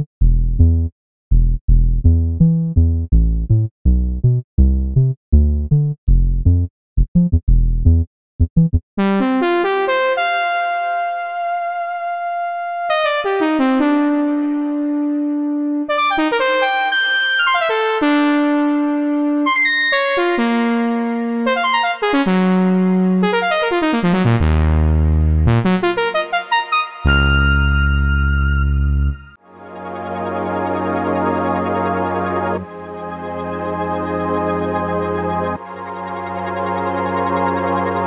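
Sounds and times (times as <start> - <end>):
synth brass melody and chords: 8.5 - 38.0
synth bass stabs: 26.8 - 29.3.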